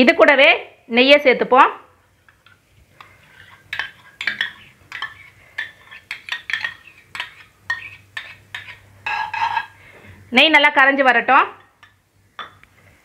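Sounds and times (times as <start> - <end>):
metal spoon clinking on steel bowl: 2.3 - 9.7.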